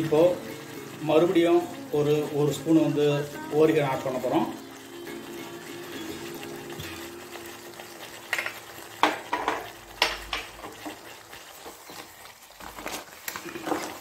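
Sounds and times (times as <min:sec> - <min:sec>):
food sizzling in pan: 0:00.0 - 0:14.0
wooden spatula scraping pan: 0:05.9 - 0:14.0.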